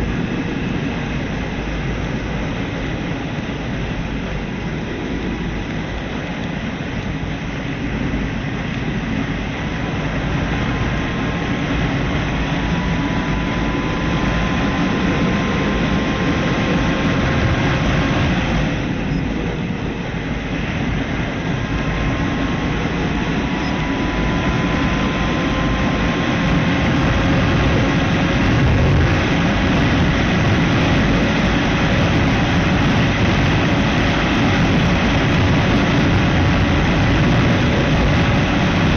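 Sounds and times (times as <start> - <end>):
heavy wind noise: 0.0 - 38.9
road noise: 0.0 - 38.9
motorcycle engine: 20.5 - 38.9.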